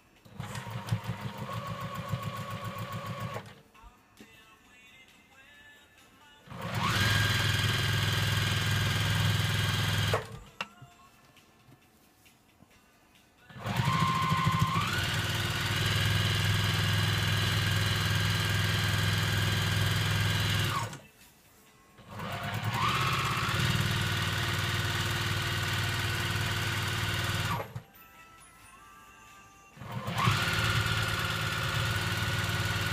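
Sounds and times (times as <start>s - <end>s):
sewing machine stitching: 0.3s - 3.6s, 6.5s - 10.5s, 13.6s - 21.0s, 22.0s - 27.8s, 29.8s - 32.9s.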